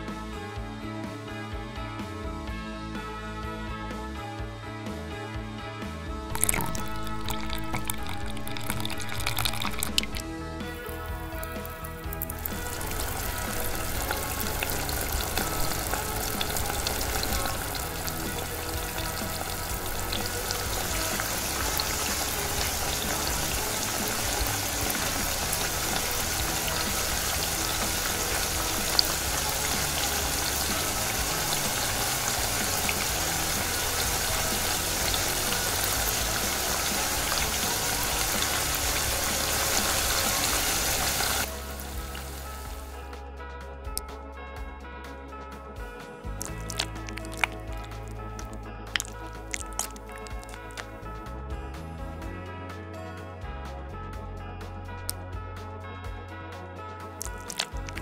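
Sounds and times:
hot oil sizzling: 6.3s - 43.0s, 46.4s - 50.9s, 57.2s - 58.0s.

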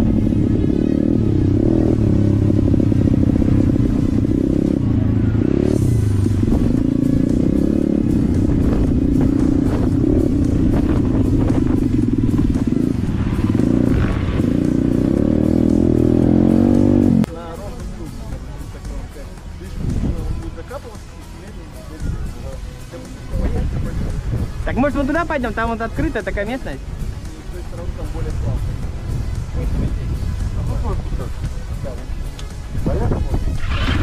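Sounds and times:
dirt bike engine revving: 0.0s - 17.3s, 33.4s - 34.0s.

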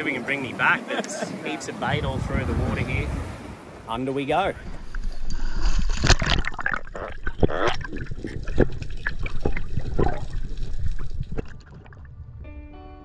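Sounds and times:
water rushing and bubbling: 4.4s - 12.4s.

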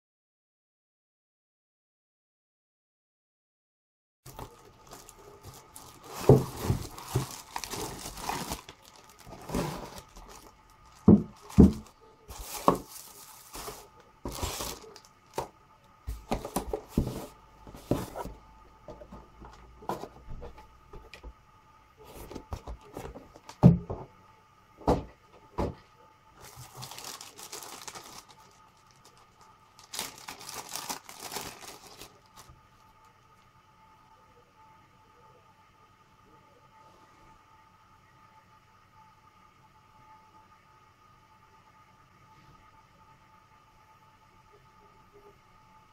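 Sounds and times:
plastic bags crinkling: 4.3s - 15.5s, 26.4s - 32.6s.

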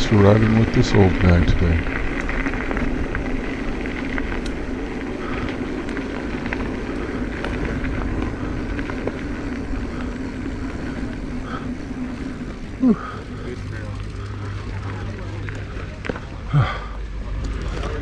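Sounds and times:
bike clicks and rattles: 0.0s - 18.0s
bike tyres rolling on dirt: 0.0s - 18.0s.

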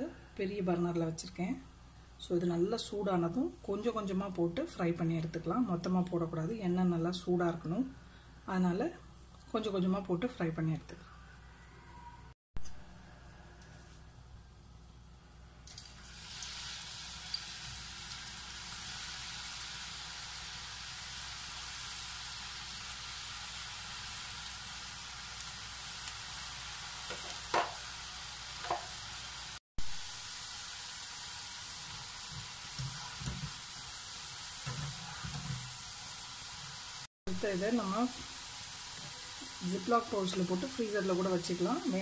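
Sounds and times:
potatoes sizzling in hot oil: 15.6s - 42.0s
spoon knocking in oil: 28.6s - 28.9s.

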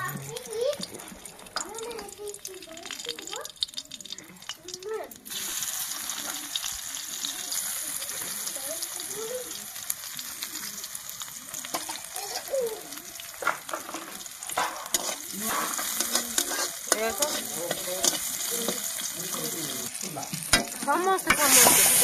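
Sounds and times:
garlic sizzling in hot oil: 0.0s - 22.0s
metal spatula scraping pan: 13.4s - 19.6s, 20.2s - 22.0s.

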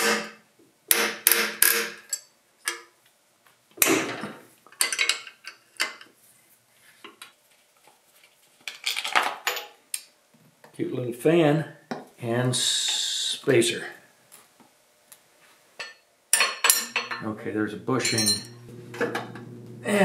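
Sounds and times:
metal parts clinking and clanking: 4.7s - 6.1s, 18.0s - 19.4s.

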